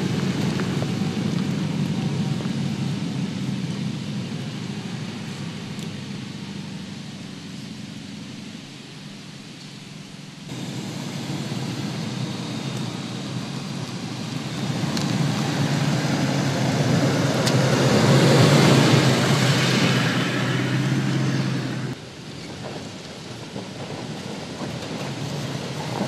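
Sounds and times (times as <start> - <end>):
stones clicking under tyres: 0.0 - 3.0, 12.7 - 18.6
tyres on loose dirt: 0.0 - 26.0
engine driving past: 10.5 - 22.0.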